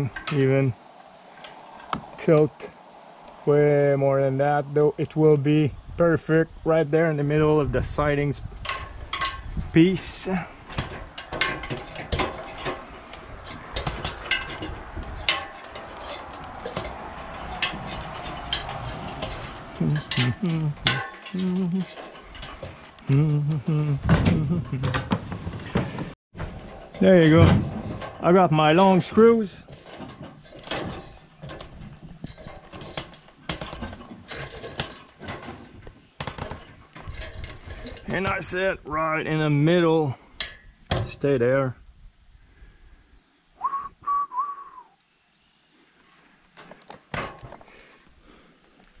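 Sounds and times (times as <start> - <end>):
knocking on ladder rungs: 8.6 - 38.6.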